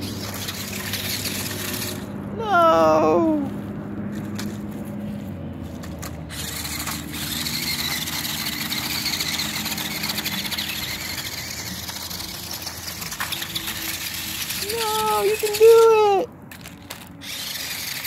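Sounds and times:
toy car electric motor whining: 0.0s - 2.7s, 5.7s - 18.0s.

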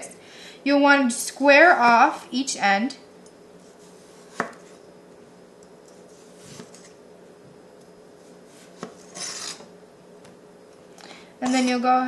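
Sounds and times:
knife slicing cucumber: 4.0s - 4.6s.

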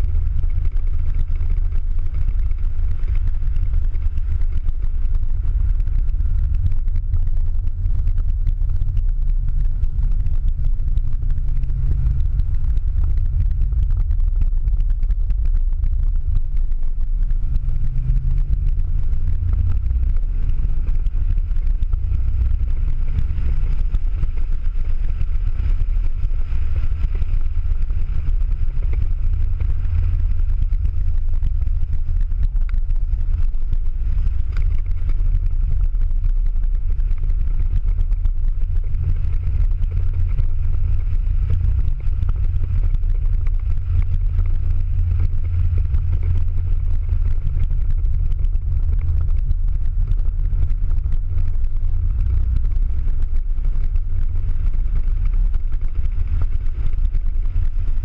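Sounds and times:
car engine drone inside cabin: 0.0s - 58.0s.

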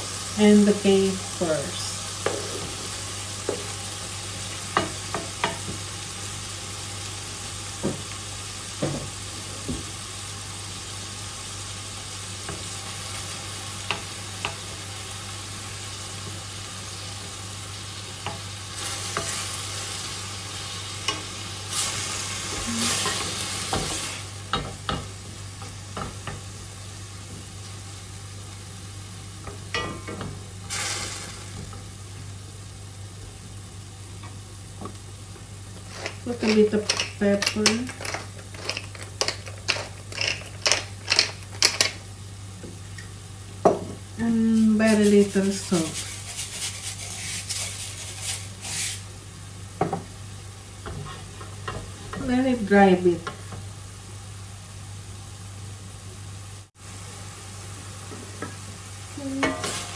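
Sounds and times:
food sizzling in hot oil: 0.0s - 59.9s
wooden spatula scraping a pan: 44.6s - 49.0s.

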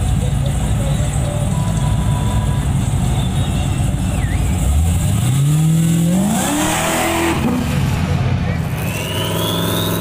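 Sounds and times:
pickup engine revving accelerating: 4.6s - 10.0s.

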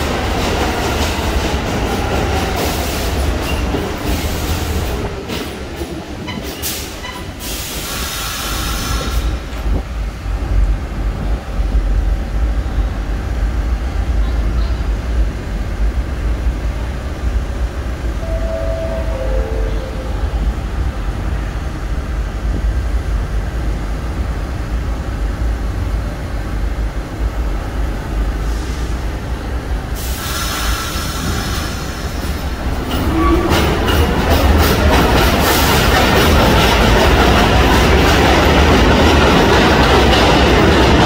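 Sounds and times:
subway train rumbling: 0.0s - 41.0s
air brake hiss: 6.6s - 9.4s, 28.4s - 29.1s, 30.0s - 32.0s
descending chime: 18.2s - 20.6s.

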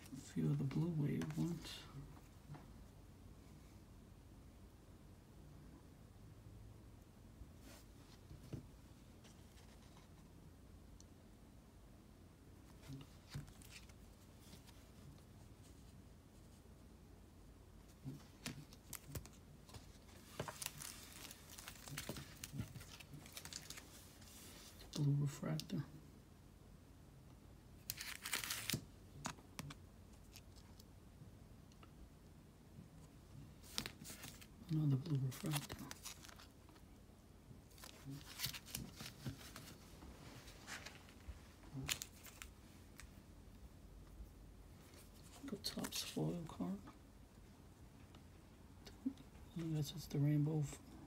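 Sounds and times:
plastic card sleeves rustling: 12.7s - 16.6s, 18.1s - 25.0s, 27.8s - 30.7s, 33.6s - 36.9s, 37.7s - 43.2s.

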